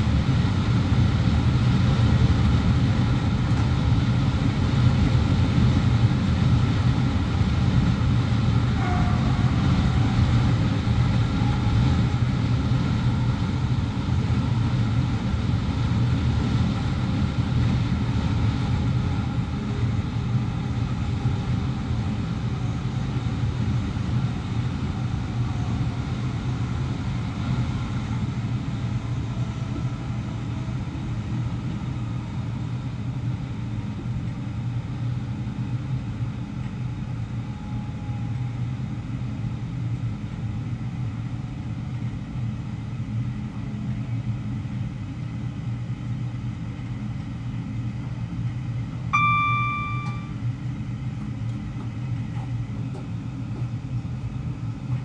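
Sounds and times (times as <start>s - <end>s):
train wheels rumbling on track: 0.0s - 49.0s, 49.8s - 55.0s
electronic warning tone: 49.2s - 50.4s.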